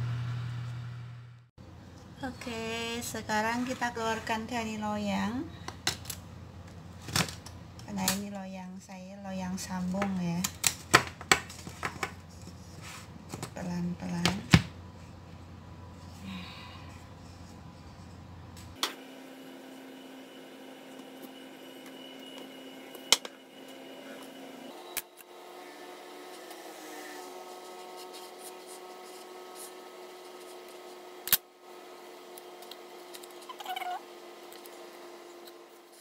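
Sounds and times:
low hum: 0:00.0 - 0:03.0.

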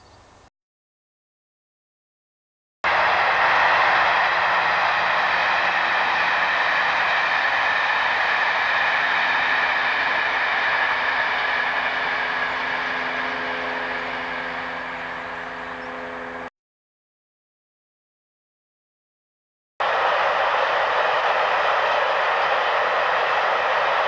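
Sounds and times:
distant passenger train passing: 0:02.9 - 0:16.5, 0:19.8 - 0:24.0.

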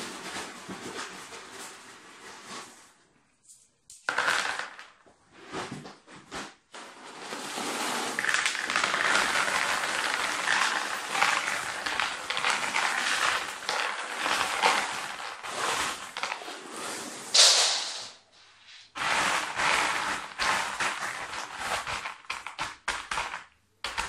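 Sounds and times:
stones rattling into plastic tray: 0:04.1 - 0:05.0, 0:07.4 - 0:16.5, 0:19.0 - 0:24.0
paper bag rustling: 0:07.1 - 0:17.4.

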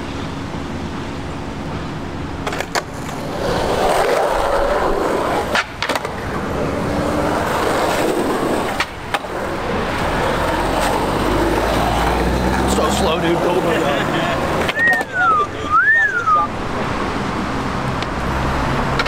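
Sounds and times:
skateboard wheels rolling on concrete: 0:00.0 - 0:19.0
skateboard clacks: 0:02.4 - 0:13.0, 0:13.6 - 0:15.3.

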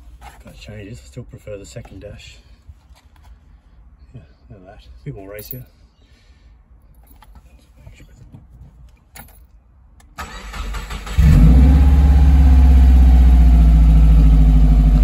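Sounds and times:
car engine idling: 0:10.5 - 0:15.0.

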